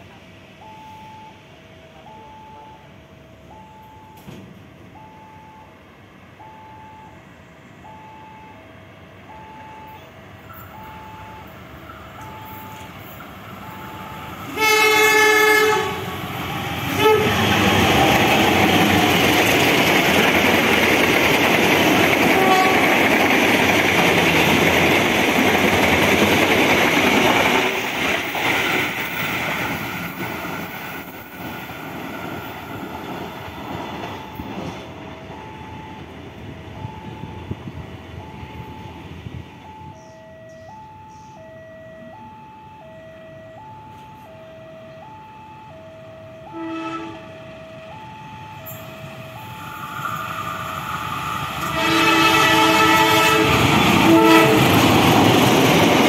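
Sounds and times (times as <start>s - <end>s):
two-tone electronic warning signal: 0.6s - 4.3s, 4.9s - 5.8s, 6.4s - 16.0s, 34.0s - 49.9s
train passing at speed: 7.1s - 40.5s, 41.1s - 56.0s
train wheels on rails: 9.3s - 39.8s, 47.8s - 56.0s.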